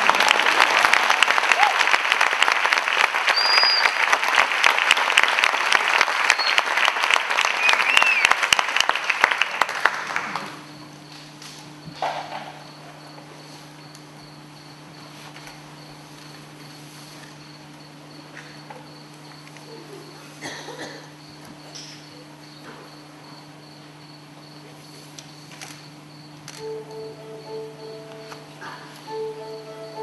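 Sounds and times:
audience applauding: 0:00.0 - 0:10.6
faint steady hum: 0:09.8 - 0:30.0
high pulsing tone: 0:26.6 - 0:30.0.

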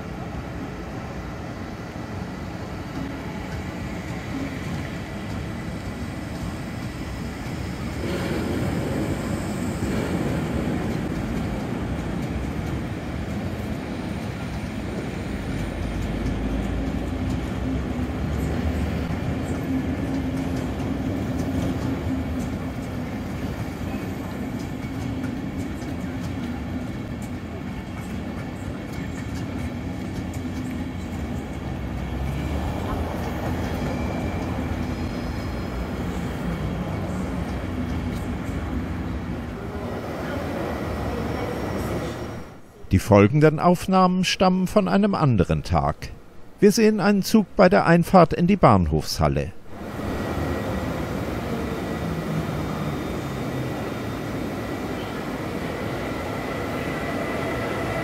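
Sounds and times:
train wheels rumbling on rail: 0:00.0 - 0:42.8, 0:49.5 - 0:58.0.

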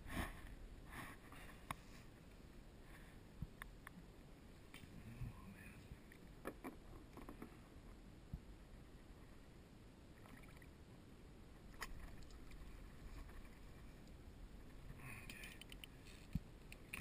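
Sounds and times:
light clicks and taps: 0:15.2 - 0:17.0.

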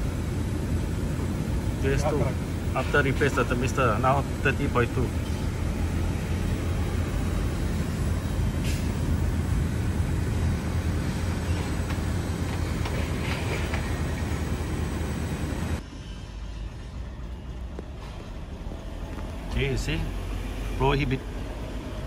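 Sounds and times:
outdoor air conditioning units humming: 0:00.0 - 0:22.0.

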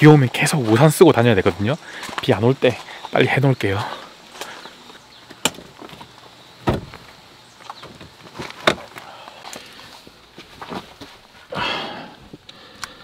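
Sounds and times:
gear clunking and knocking: 0:05.4 - 0:09.0.

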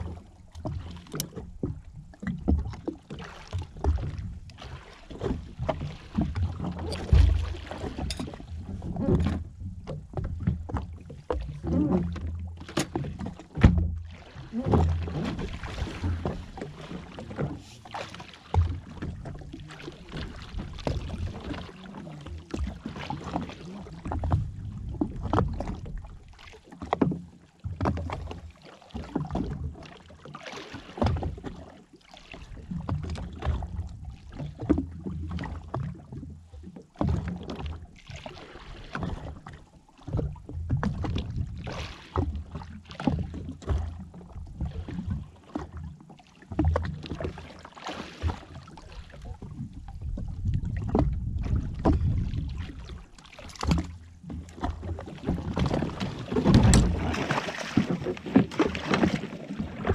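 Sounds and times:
water sloshing against hull: 0:00.0 - 0:59.9.

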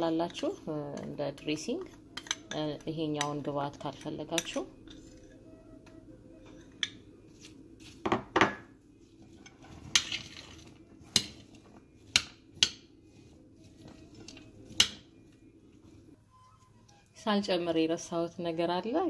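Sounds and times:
metal spoon clinking on ceramic dish: 0:02.2 - 0:03.4.

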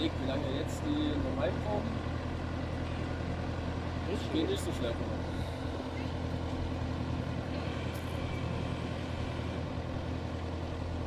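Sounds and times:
fire engine engine humming: 0:00.0 - 0:11.0.

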